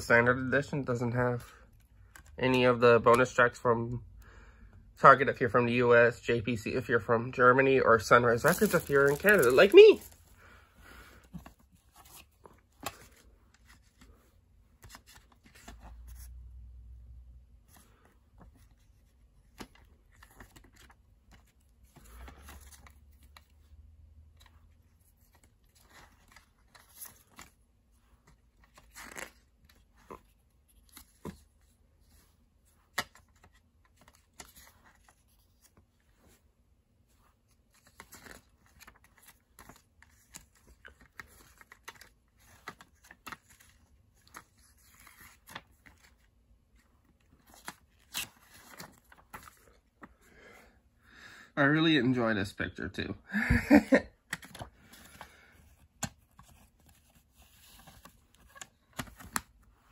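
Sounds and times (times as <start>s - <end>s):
paper rustling and page turning: 8.0s - 10.5s, 11.2s - 16.6s, 17.6s - 50.2s, 54.3s - 59.9s.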